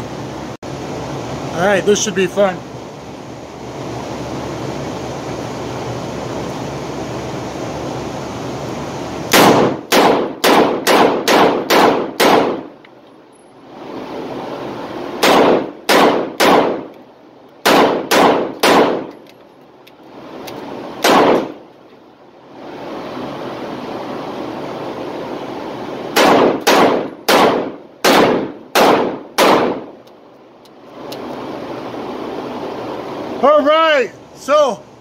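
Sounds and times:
revolver shots in indoor range: 9.3 - 12.7, 26.1 - 29.9.

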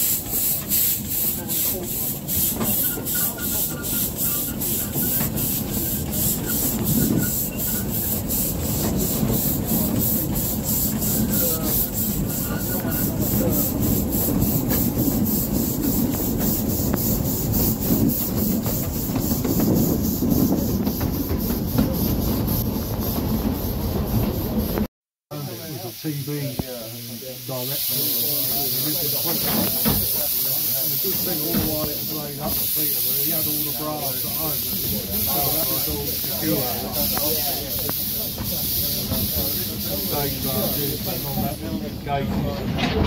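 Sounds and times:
coaches rumbling on track: 0.0 - 24.9
steam locomotive chuffing: 0.0 - 43.0.

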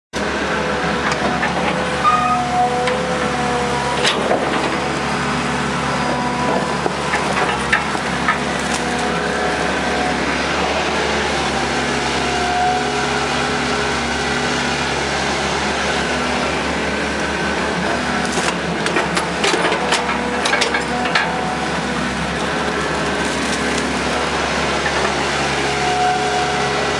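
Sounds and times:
excavator diesel engine with whine: 0.2 - 26.9.

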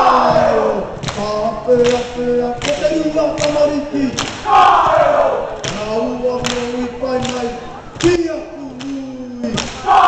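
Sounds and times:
loud shouted cry: 0.0 - 1.0, 4.4 - 5.6, 9.6 - 10.0
men chanting in unison: 0.0 - 10.0.

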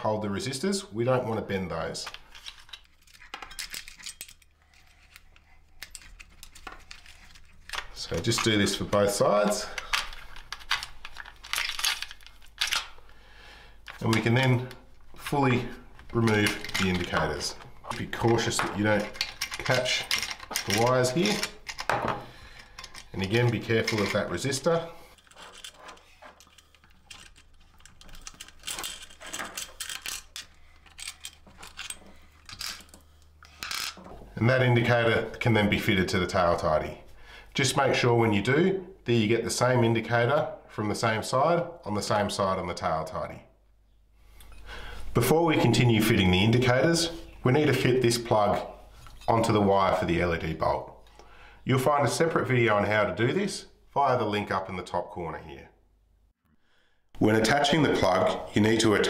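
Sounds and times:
plastic and wiring rubbing: 2.1 - 8.9, 22.8 - 34.3.

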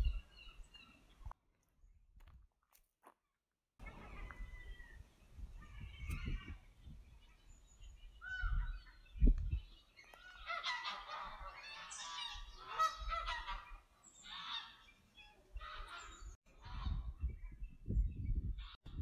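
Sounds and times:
geese honking: 10.2 - 14.9, 15.6 - 16.9.

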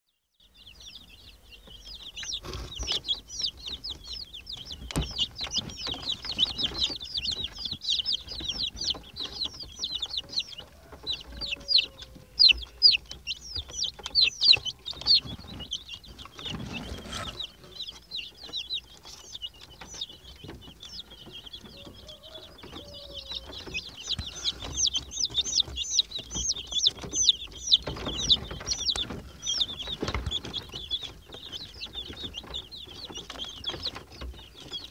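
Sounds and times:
chicks peeping: 0.1 - 34.9.

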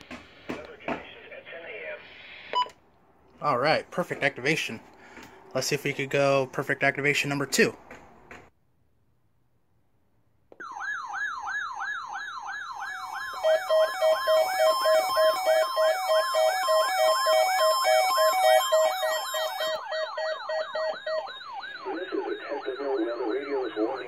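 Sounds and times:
siren of falling sweeps: 10.6 - 24.0
pulsed on-off beeping: 13.2 - 24.0.

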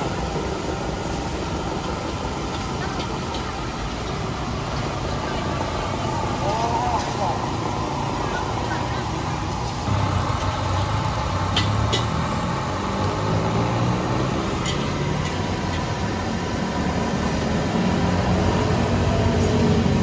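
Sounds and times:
engine idling: 0.0 - 20.0.

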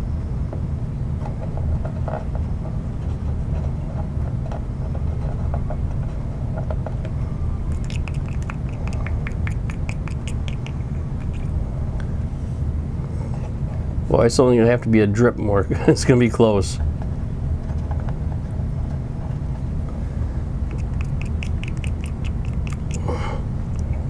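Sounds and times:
stick scratching and clicking: 7.7 - 11.6, 20.7 - 24.0.

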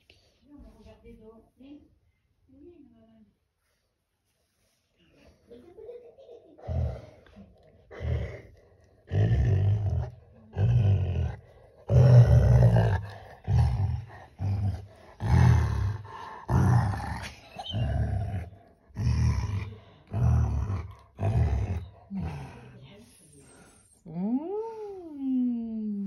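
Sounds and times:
dog growling: 6.6 - 22.8.

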